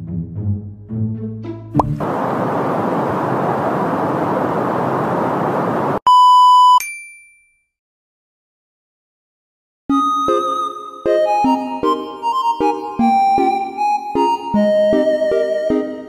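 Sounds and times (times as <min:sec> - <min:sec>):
sea rushing: 0:01.8 - 0:06.0
censor bleep: 0:06.1 - 0:06.8.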